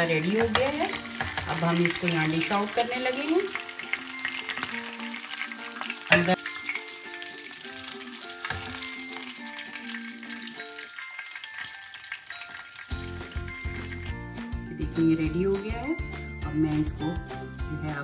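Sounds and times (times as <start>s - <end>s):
metal tongs clacking: 0.0s - 7.0s, 8.4s - 9.3s
oil sizzling and crackling: 0.0s - 14.6s
soft background music: 0.0s - 18.0s.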